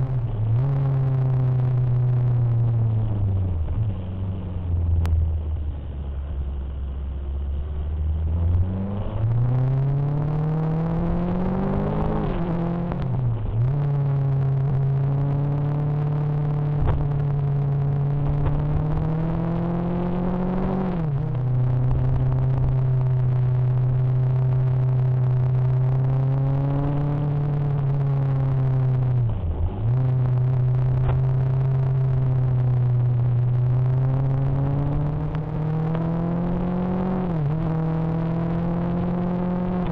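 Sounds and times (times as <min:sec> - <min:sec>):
motorcycle engine accelerating: 0:08.0 - 0:39.9.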